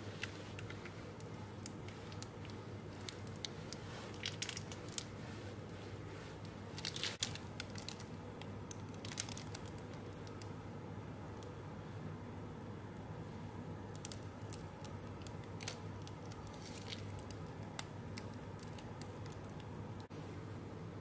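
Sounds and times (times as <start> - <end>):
plastic piping bag crinkling: 0.0 - 5.2, 6.7 - 10.4, 13.9 - 19.7
steady low hum: 0.0 - 21.0.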